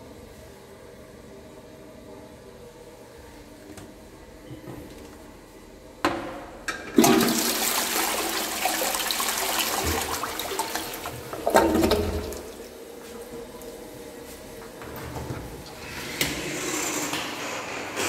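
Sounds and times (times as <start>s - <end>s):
toilet flush click: 6.7s - 12.6s
toilet flushing water rush: 6.9s - 12.9s.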